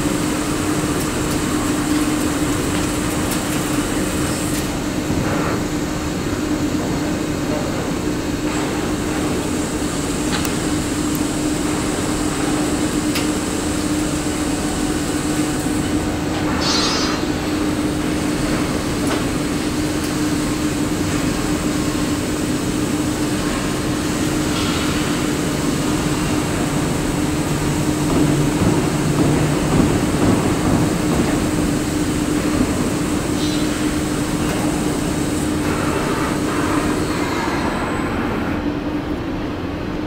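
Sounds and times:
lathe machine hum: 7.7s - 39.7s.

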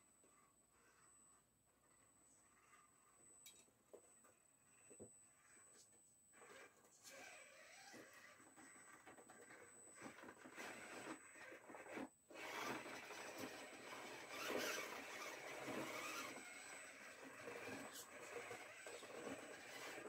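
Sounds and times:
toy car electric motor whirring: 5.3s - 20.0s.

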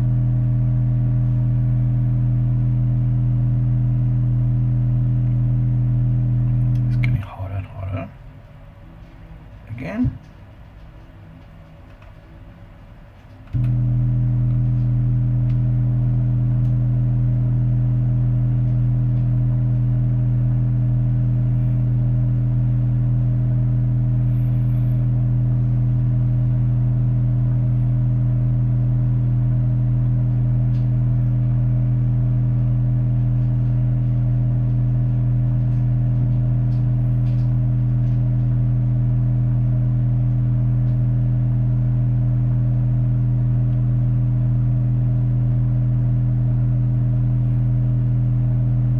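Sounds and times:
low-pitched test tone: 13.6s - 48.9s.

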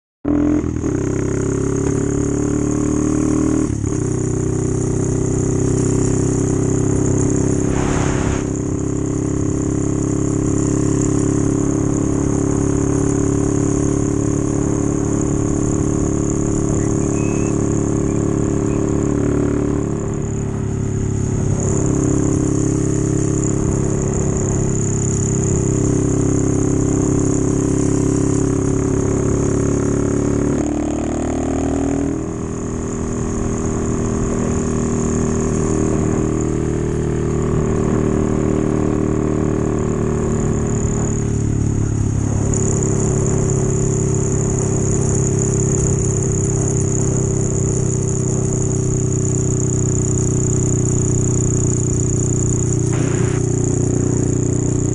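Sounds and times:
motorbike engine running: 0.2s - 54.9s
brief hiss: 7.6s - 8.6s, 52.9s - 53.4s.

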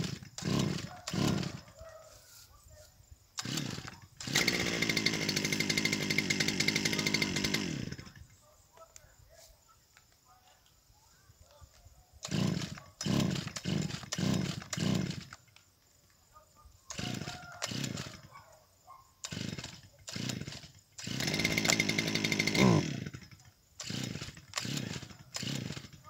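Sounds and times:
small petrol engine revving: 0.0s - 1.8s, 3.4s - 8.3s, 12.2s - 15.4s, 16.9s - 18.3s, 19.2s - 26.0s
recoil cord pulls: 3.4s - 8.1s, 12.2s - 15.7s, 16.9s - 18.3s, 19.2s - 26.0s.

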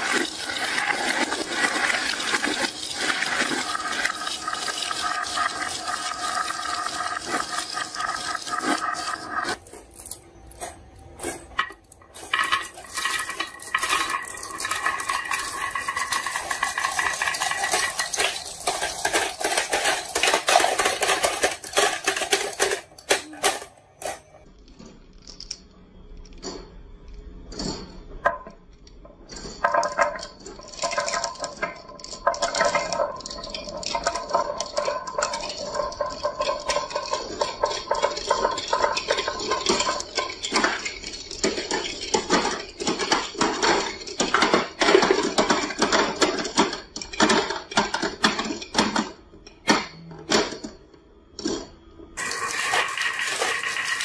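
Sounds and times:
marbles rattling down wooden slope: 0.0s - 9.6s, 11.6s - 23.6s, 29.6s - 48.8s, 52.2s - 54.0s.

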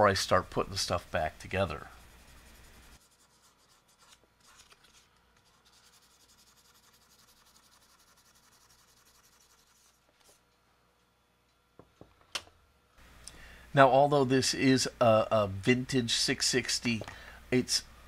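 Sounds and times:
sandpaper rubbing on metal: 1.8s - 4.2s, 5.5s - 10.0s.

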